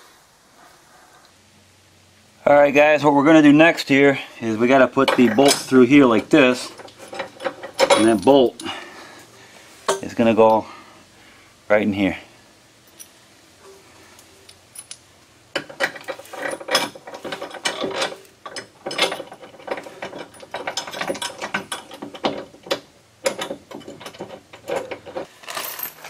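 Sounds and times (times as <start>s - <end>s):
metallic clicking and knocking: 5.0s - 8.4s, 14.8s - 25.3s.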